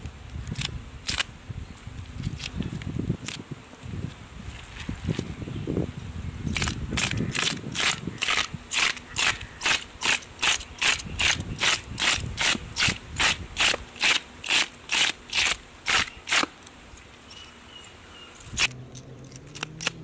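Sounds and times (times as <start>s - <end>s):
fish scaler scraping scales: 6.5s - 16.5s.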